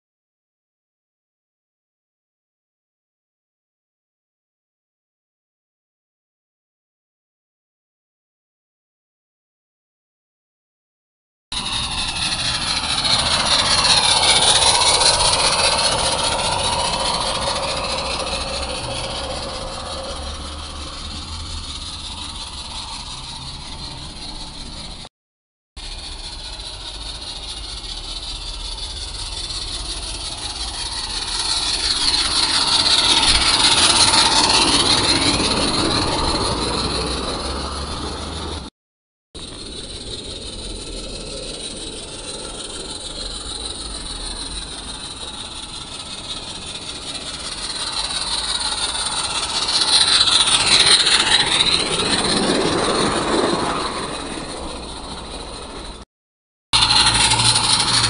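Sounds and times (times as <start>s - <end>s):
model train passing on track: 11.6s - 25.1s, 25.8s - 38.7s, 39.4s - 56.0s, 56.8s - 58.0s.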